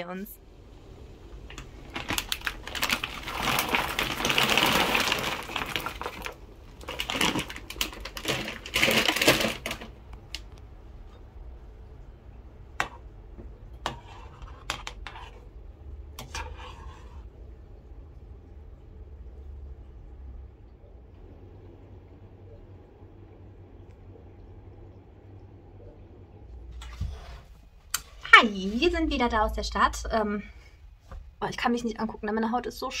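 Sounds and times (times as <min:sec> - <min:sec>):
dumplings splashing into water: 0:01.4 - 0:10.5
plastic bag crinkling: 0:01.5 - 0:10.4.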